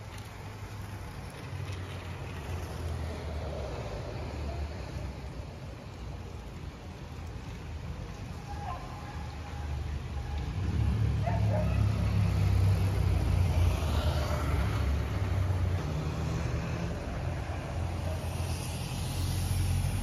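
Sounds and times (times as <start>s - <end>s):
scooter passing on cobblestones: 0.0s - 20.0s.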